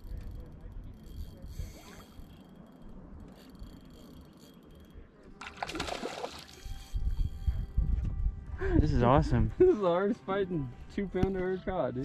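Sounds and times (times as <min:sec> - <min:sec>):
fish thrashing and splashing: 0:05.4 - 0:06.8.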